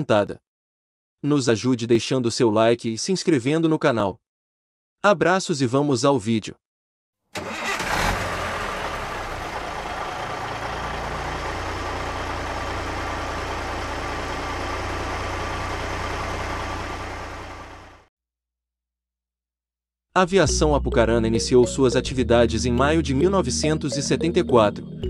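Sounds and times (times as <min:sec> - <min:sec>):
bus engine idling: 0:07.4 - 0:18.1.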